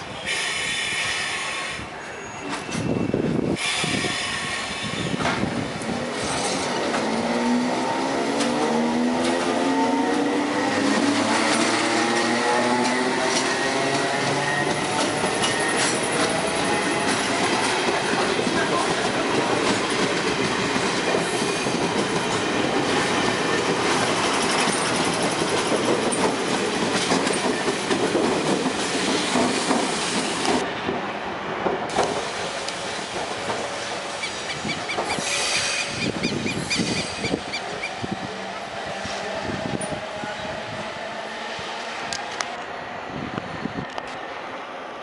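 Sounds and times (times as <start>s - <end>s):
train rumbling past: 0.0s - 45.0s.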